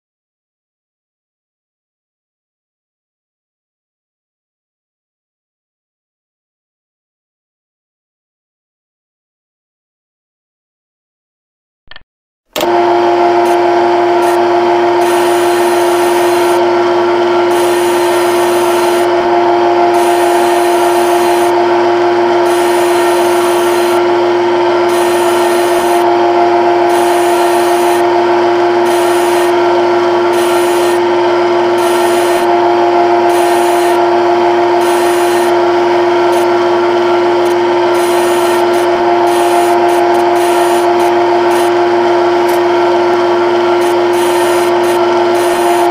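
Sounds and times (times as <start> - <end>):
grinding cutting noise: 12.6 - 45.9
synthetic lathe spindle hum: 12.6 - 45.9.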